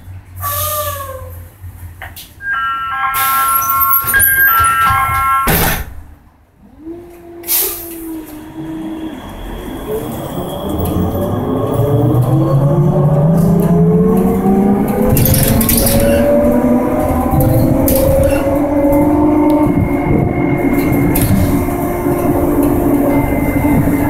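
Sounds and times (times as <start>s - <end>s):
electronic beeping: 2.4s - 5.6s.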